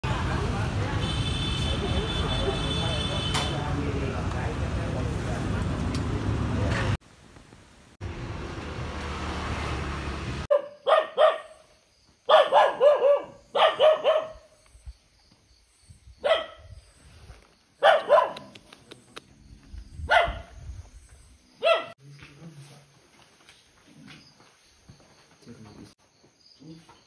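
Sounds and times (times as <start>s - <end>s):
dog barking: 10.5s - 11.6s, 12.3s - 14.5s, 16.2s - 16.7s, 17.8s - 18.5s, 20.1s - 20.5s, 21.6s - 22.0s.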